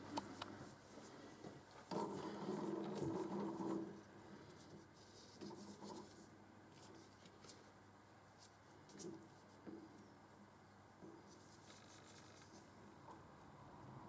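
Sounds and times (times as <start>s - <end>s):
rustle: 11.1s - 13.3s.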